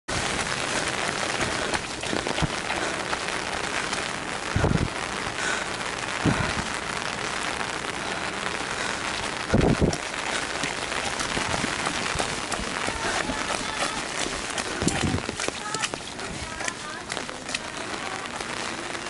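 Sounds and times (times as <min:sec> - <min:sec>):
dull low thumps: 0:00.1 - 0:05.3, 0:06.0 - 0:07.0, 0:09.2 - 0:16.6
rain on pavement: 0:00.1 - 0:19.0.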